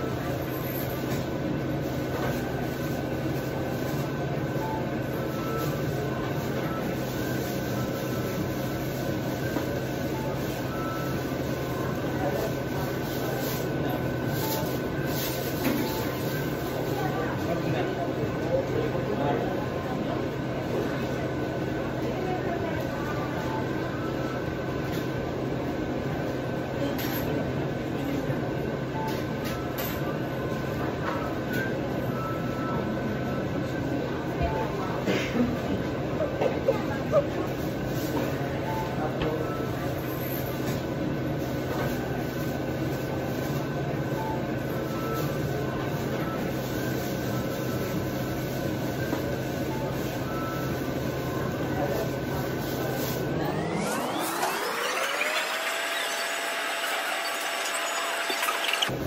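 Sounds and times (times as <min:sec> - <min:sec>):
shopping mall hum and hiss: 0:00.0 - 0:59.0.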